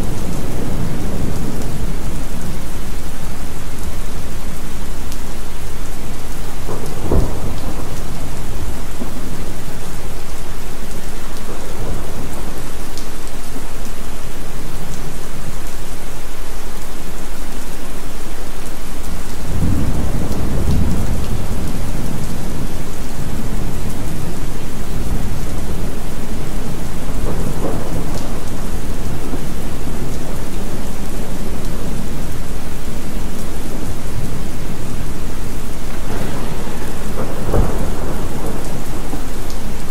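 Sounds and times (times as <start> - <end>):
rolling thunder: 0.0 - 2.9, 6.5 - 12.8, 19.5 - 39.9
heavy rain: 0.0 - 39.9.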